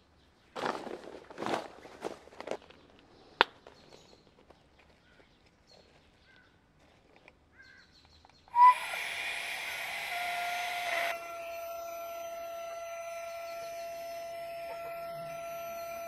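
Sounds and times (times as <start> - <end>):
soft handling sounds: 0.7 - 7.5
air pump whining: 8.5 - 16.0.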